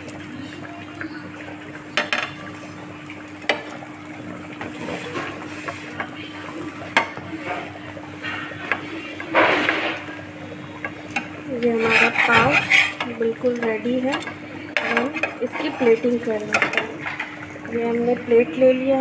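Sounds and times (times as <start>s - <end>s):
butter sizzling: 0.0s - 19.0s
metal spatula scraping a griddle: 11.6s - 13.1s, 14.8s - 16.8s.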